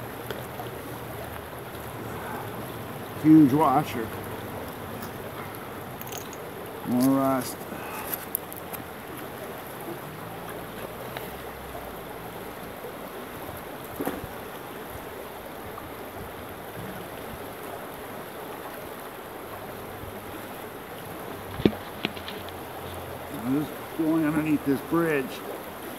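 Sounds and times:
stream rushing over rocks: 0:00.0 - 0:25.9.

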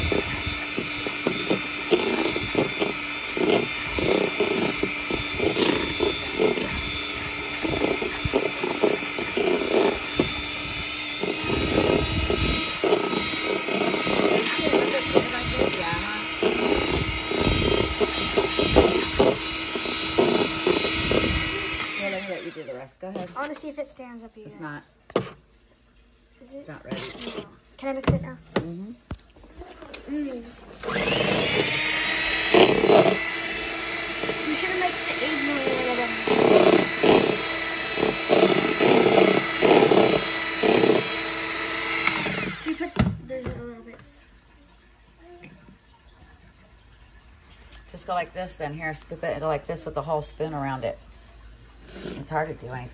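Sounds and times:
electric hand mixer whipping: 0:00.0 - 0:22.9, 0:30.6 - 0:43.2.

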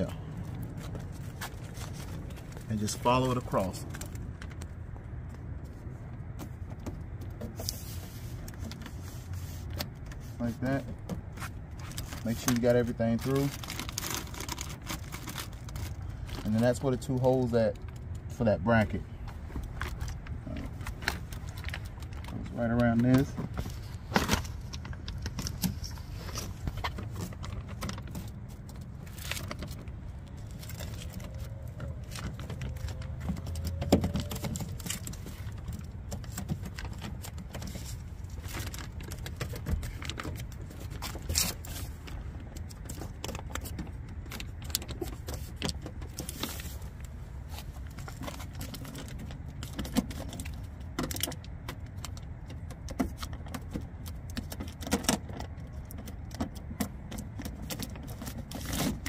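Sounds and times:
steady low rumble: 0:00.0 - 0:58.5
plastic sheet crinkling: 0:11.7 - 0:16.6.

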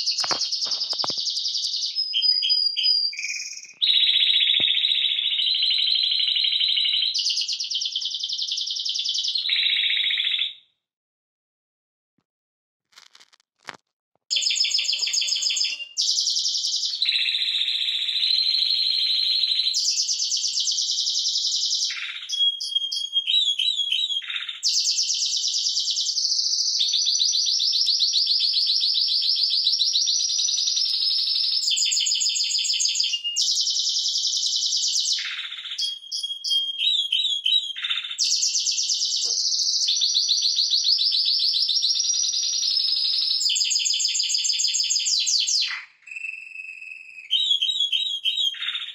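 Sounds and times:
canary singing trills: 0:00.0 - 0:10.6, 0:14.3 - 0:27.2, 0:42.0 - 0:48.9.

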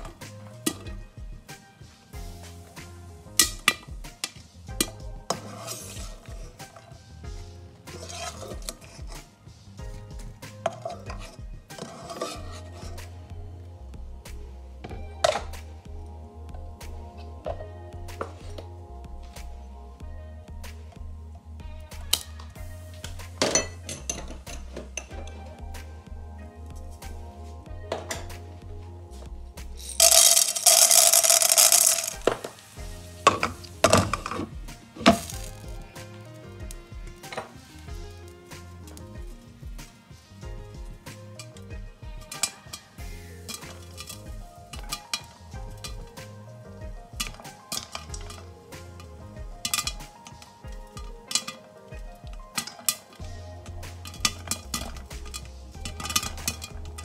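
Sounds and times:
faint background music: 0:00.0 - 0:57.0
spatula scraping a frying pan: 0:05.2 - 0:07.0, 0:07.8 - 0:09.3, 0:10.6 - 0:13.1, 0:29.8 - 0:46.4, 0:52.5 - 0:57.0.

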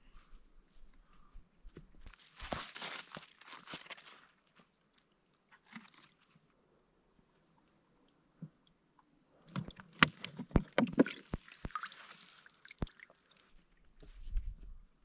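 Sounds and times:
crunching and rustling: 0:02.1 - 0:04.7.

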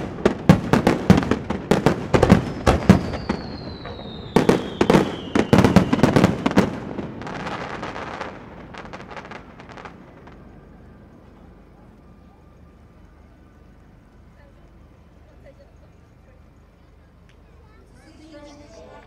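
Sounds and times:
fireworks booming: 0:00.0 - 0:16.6
fireworks crackling: 0:00.0 - 0:19.0
firework whistle sliding down: 0:02.5 - 0:06.5.

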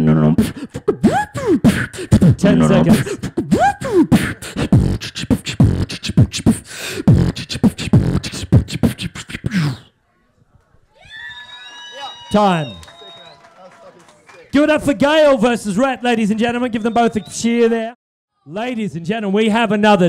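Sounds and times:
beatboxing into microphone: 0:00.0 - 0:10.0.

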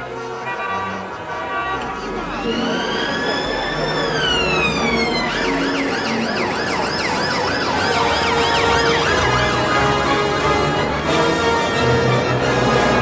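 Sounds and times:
siren wailing and yelping: 0:01.9 - 0:10.1.

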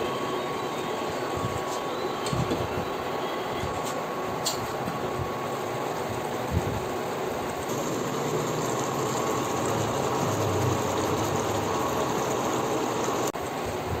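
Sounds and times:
stir-fry sizzling and bubbling: 0:06.9 - 0:13.6.

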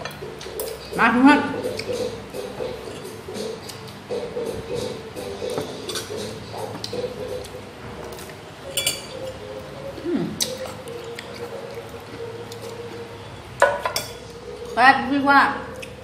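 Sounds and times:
steady low hum: 0:00.0 - 0:16.0
clinks of dishes or cutlery: 0:08.7 - 0:09.4, 0:13.6 - 0:14.2
chewing with mouth closed: 0:10.0 - 0:13.1.

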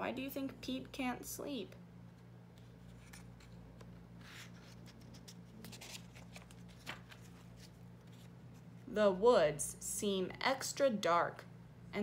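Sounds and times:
low steady hum: 0:00.0 - 0:12.0
paper page rustling: 0:02.6 - 0:08.7
crisp paper sound: 0:04.2 - 0:08.4.

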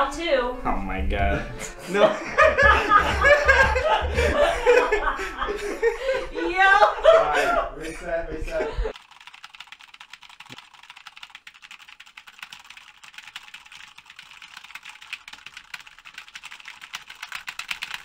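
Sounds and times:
fast keyboard typing: 0:08.9 - 0:18.0.

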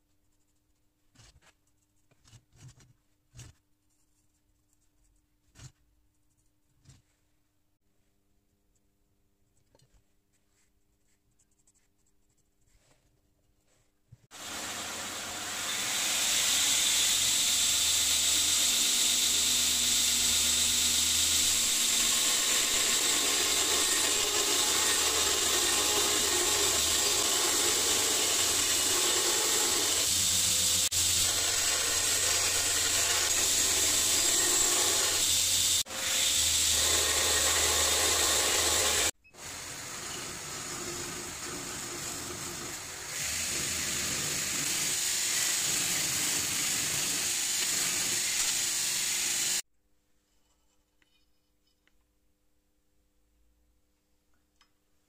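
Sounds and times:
belt grinder hissing on steel: 0:14.3 - 0:49.6.

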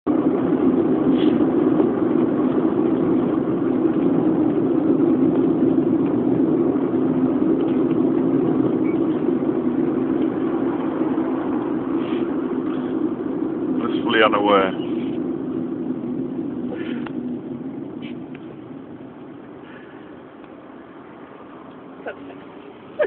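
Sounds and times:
car engine and road noise: 0:00.0 - 0:23.0
low steady hum: 0:00.1 - 0:23.0.

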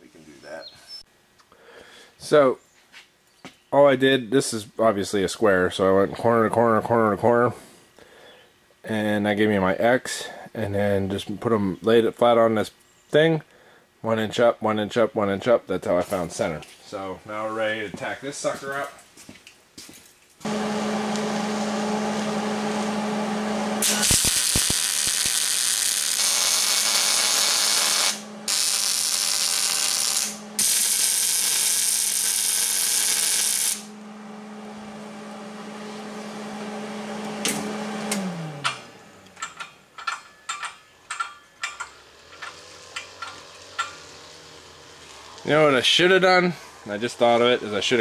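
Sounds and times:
welder hum: 0:20.4 - 0:40.3, 0:41.1 - 0:48.0
welding arc crackle: 0:23.8 - 0:34.0, 0:41.2 - 0:46.2.

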